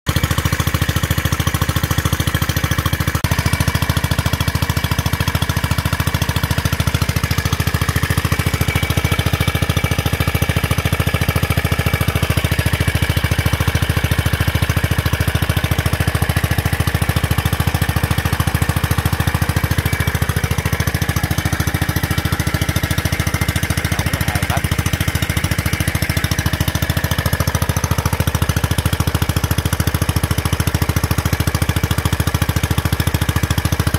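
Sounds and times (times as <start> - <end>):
single-cylinder engine running: 0.1 - 33.9.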